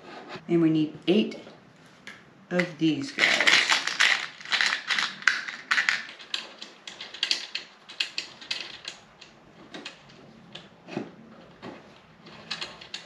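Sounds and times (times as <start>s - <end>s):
screws rattling in plastic box: 3.1s - 10.2s, 11.5s - 13.0s.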